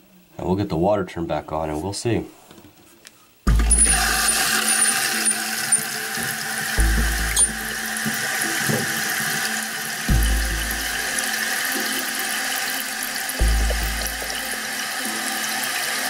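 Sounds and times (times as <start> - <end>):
water pouring into toilet tank: 3.5 - 16.0.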